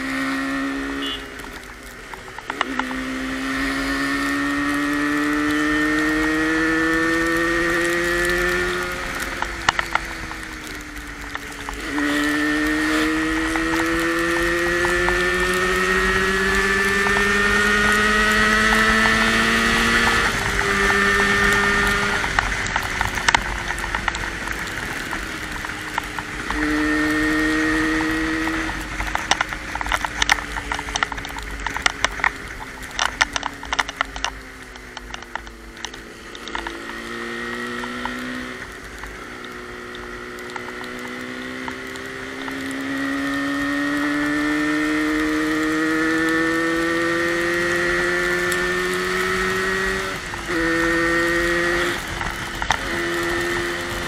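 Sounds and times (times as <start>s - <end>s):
motorcycle engine revving: 0.0s - 54.0s
sharp clicks: 7.2s - 42.9s.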